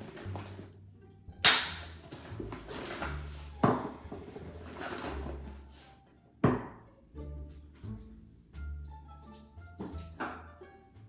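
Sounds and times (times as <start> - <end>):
objects knocking on hard countertop: 3.6 - 4.0, 6.4 - 6.8.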